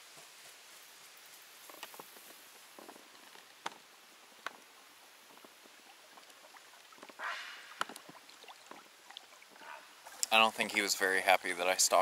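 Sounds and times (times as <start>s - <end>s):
rush of water: 3.8s - 12.0s
water dripping on hull: 5.3s - 10.4s.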